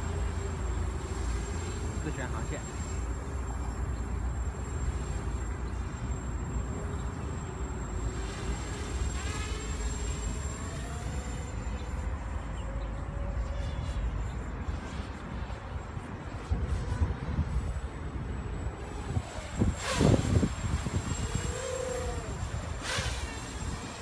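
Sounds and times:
quadcopter motors buzzing: 0:00.0 - 0:24.0
wind rumble on microphone: 0:12.7 - 0:24.0.

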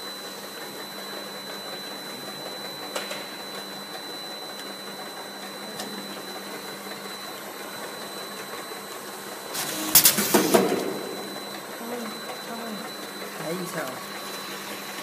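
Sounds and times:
high whine: 0:00.0 - 0:15.0
labeling machine whirring: 0:00.0 - 0:15.0
low hum: 0:09.6 - 0:13.2.

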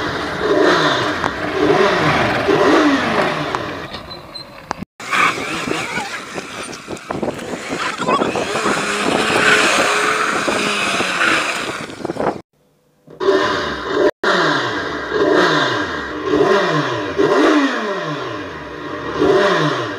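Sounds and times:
motorcycle engine revving: 0:00.0 - 0:04.1, 0:05.0 - 0:12.4, 0:13.1 - 0:19.9
tyres skidding on dirt: 0:00.0 - 0:12.4.

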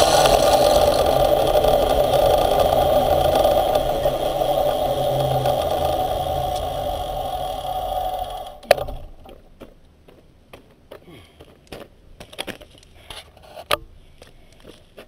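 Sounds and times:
electric motor hum: 0:00.0 - 0:09.2.

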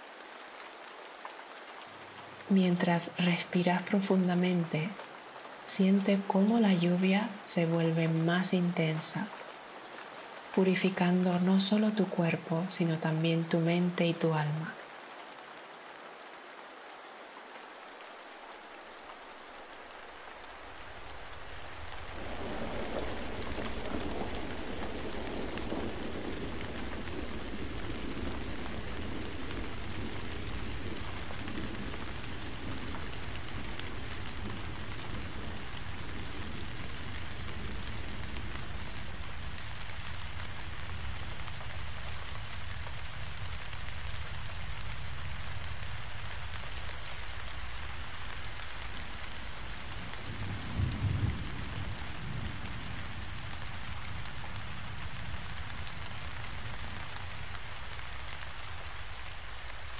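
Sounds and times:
heavy rain: 0:00.0 - 0:59.9
thunder rumbling: 0:20.6 - 0:59.9.

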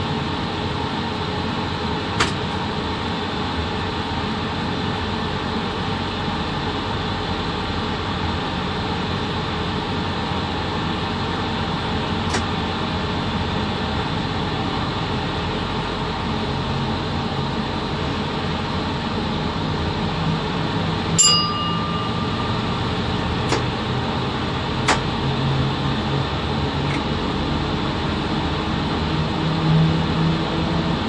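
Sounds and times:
locomotive cab drone: 0:00.0 - 0:31.0
metallic clink: 0:21.2 - 0:22.7.

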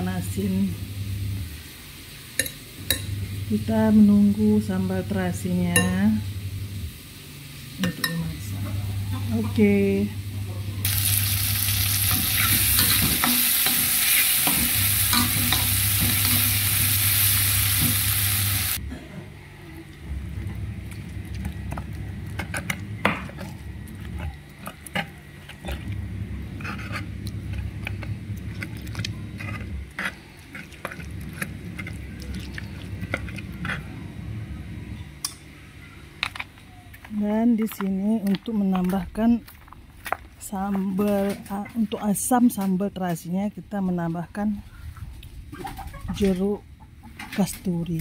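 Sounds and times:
sambal sizzling in hot oil: 0:09.3 - 0:18.8.

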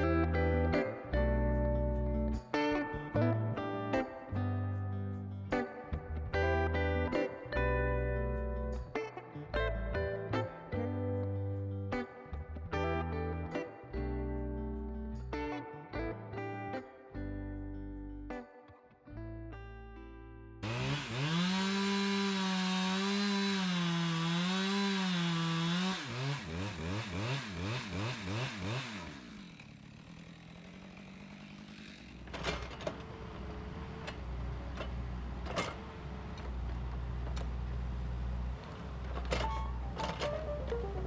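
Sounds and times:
chainsaw cutting wood: 0:20.6 - 0:33.2.

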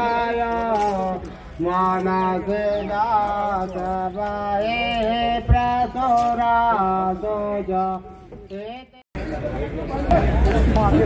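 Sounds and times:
man singing unaccompanied: 0:00.0 - 0:09.0.

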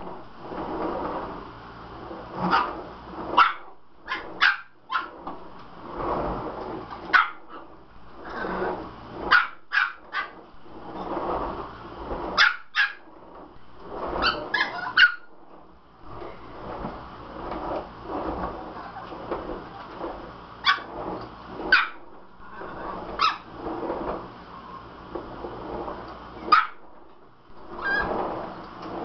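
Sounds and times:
vacuum cleaner running: 0:00.0 - 0:24.3, 0:25.0 - 0:29.0
small dog yapping: 0:03.4 - 0:05.2, 0:07.1 - 0:07.5, 0:09.3 - 0:10.4, 0:12.4 - 0:13.0, 0:14.2 - 0:15.3, 0:21.7 - 0:22.0, 0:23.2 - 0:23.4.

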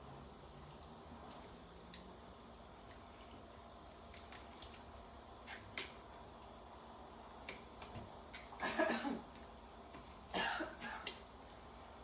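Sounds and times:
wet squishing: 0:00.0 - 0:08.6.

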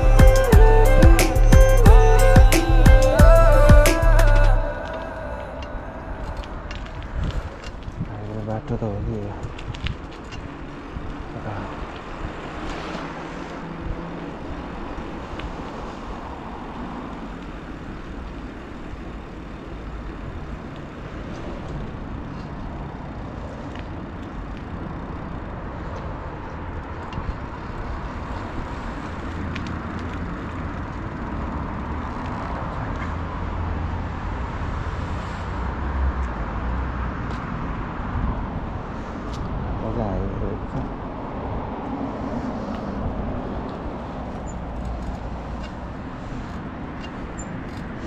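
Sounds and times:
traffic noise: 0:00.0 - 0:48.0
wind and road noise: 0:00.0 - 0:48.0.

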